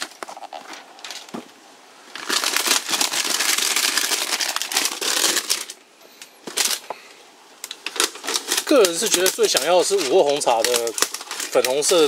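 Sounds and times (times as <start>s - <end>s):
plastic bottles crinkling: 0.0s - 12.0s.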